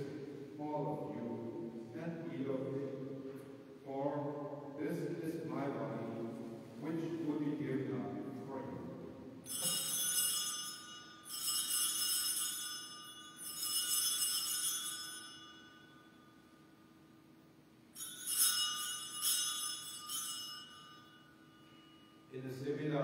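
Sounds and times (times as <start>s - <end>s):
small bells shaking: 9.5s - 16.0s, 18.0s - 22.1s.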